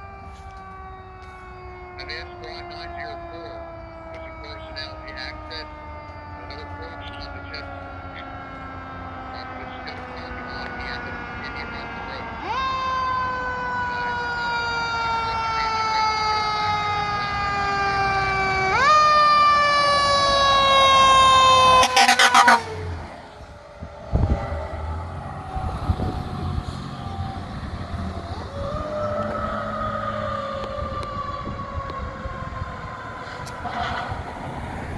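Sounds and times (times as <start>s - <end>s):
mechanical siren wailing: 0.0s - 34.9s
air horn blasts: 21.1s - 22.9s.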